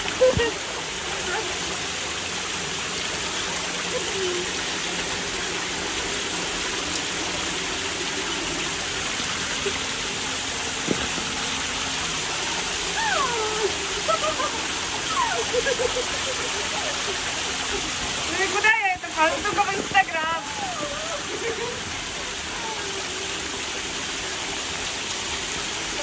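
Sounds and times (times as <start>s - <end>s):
water jets spraying hiss: 0.0s - 26.0s
person crying out: 12.9s - 16.0s, 20.4s - 21.4s.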